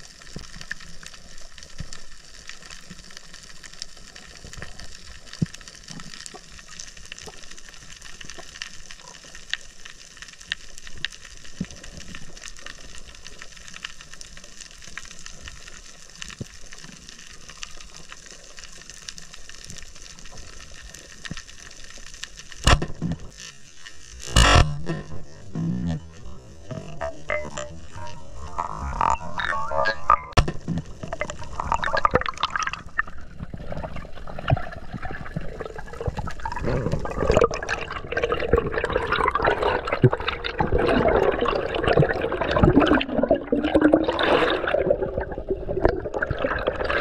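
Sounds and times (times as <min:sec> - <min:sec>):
snapping shrimp clicks underwater: 0:22.6 - 0:23.3.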